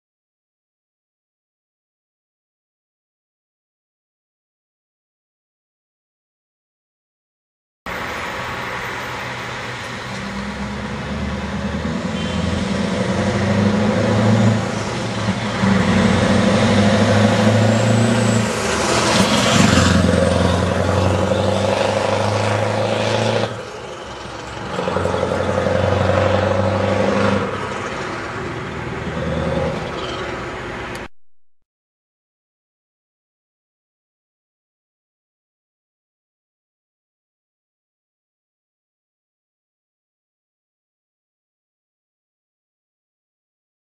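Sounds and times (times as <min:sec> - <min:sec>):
truck driving past: 0:07.9 - 0:31.1.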